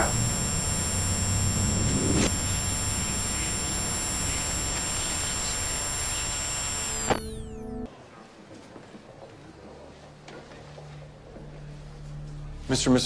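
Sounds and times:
even hiss: 0:00.0 - 0:07.8
low hum: 0:00.0 - 0:07.9.

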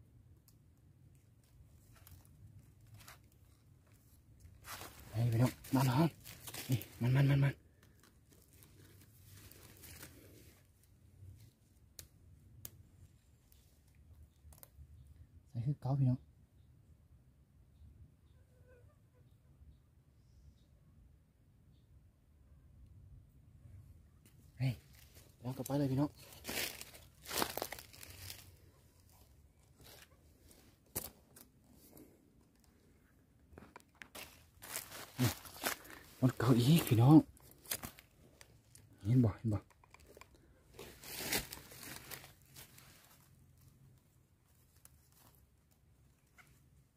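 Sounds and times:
footsteps crunching dry leaves: 0:04.6 - 0:07.3, 0:08.3 - 0:10.4, 0:24.8 - 0:28.6, 0:34.1 - 0:38.8, 0:40.7 - 0:43.3
hands rustling bamboo trap: 0:25.0 - 0:31.6.

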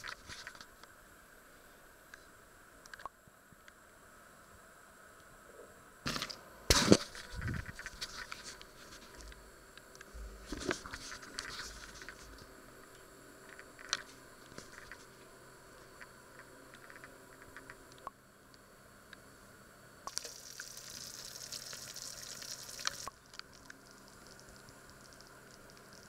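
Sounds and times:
rustles and clicks of food handling: 0:00.0 - 0:00.9, 0:06.1 - 0:18.1.

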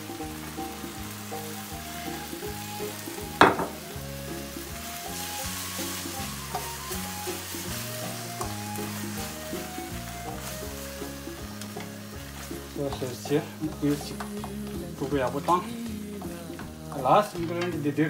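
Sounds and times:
potatoes sizzling in a pan: 0:00.0 - 0:18.0
spatula stirring in a pan: 0:00.1 - 0:17.7
sharp knock: 0:03.4 - 0:03.8.

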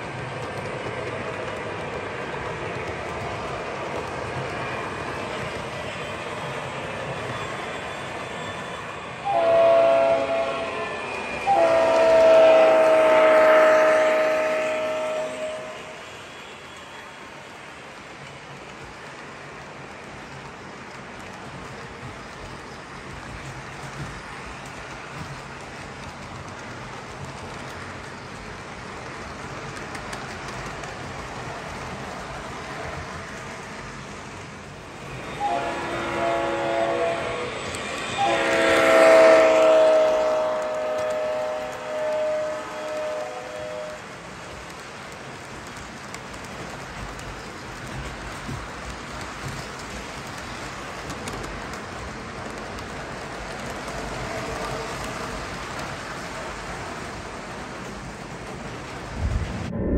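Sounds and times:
model train rolling on track: 0:00.0 - 0:59.3
multi-note air horn blasts: 0:09.2 - 0:16.0, 0:35.4 - 0:44.0.

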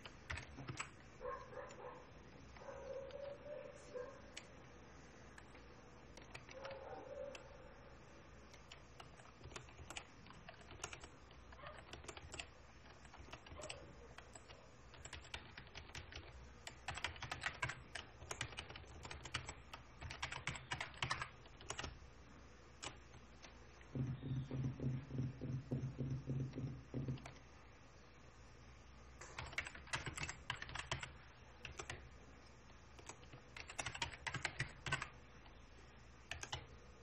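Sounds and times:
typing on keyboard: 0:00.0 - 0:01.0, 0:05.3 - 0:07.5, 0:08.5 - 0:22.0, 0:22.8 - 0:27.4, 0:29.2 - 0:32.1, 0:33.0 - 0:35.2, 0:36.3 - 0:36.7.

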